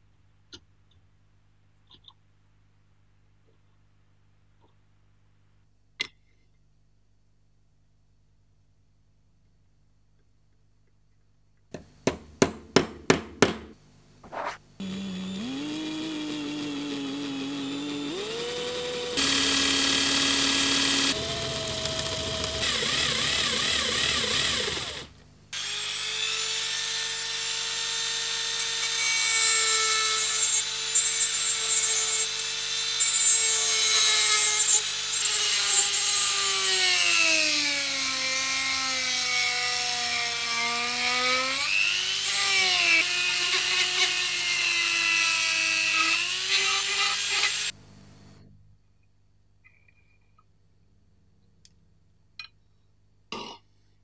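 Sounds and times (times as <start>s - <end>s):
rotary tool grinding metal: 14.3s - 27.4s, 39.3s - 47.7s
small power drill drilling metal: 14.8s - 47.7s.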